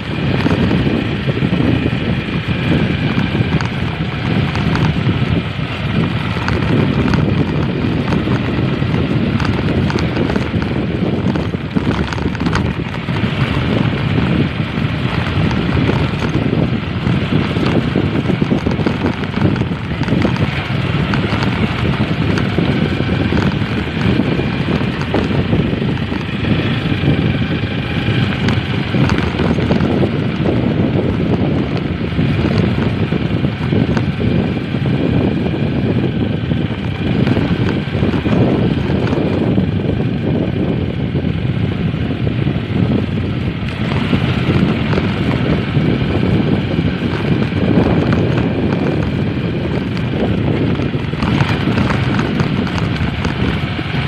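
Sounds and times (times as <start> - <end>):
motorcycle engine running: 0.0 - 54.0
wind buffeting microphone: 0.0 - 54.0
knocks and rattles from bumps: 3.0 - 5.2, 5.9 - 14.4, 15.0 - 26.5.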